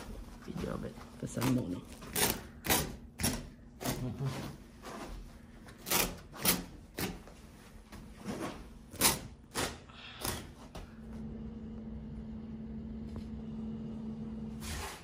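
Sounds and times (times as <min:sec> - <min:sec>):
carpet rustling: 0:00.0 - 0:02.5, 0:04.1 - 0:09.1
carpet tearing: 0:01.4 - 0:07.4, 0:08.2 - 0:10.5.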